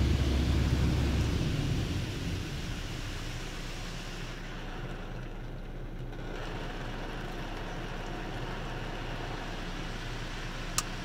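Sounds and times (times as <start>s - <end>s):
low hum: 0.0s - 4.4s
car wash spraying water: 0.0s - 5.3s, 6.2s - 11.0s.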